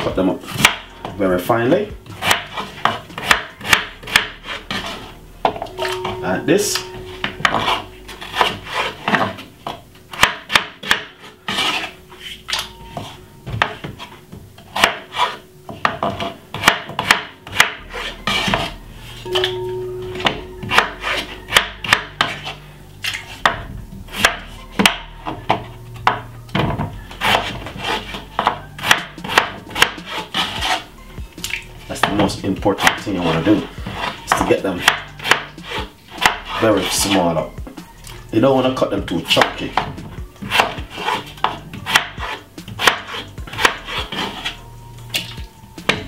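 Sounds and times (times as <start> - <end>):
knife chopping on wooden board: 0.5 - 1.2, 2.1 - 5.0, 10.1 - 11.8, 14.7 - 18.7, 23.4 - 30.8, 31.4 - 33.0, 33.8 - 36.6, 39.3 - 44.4.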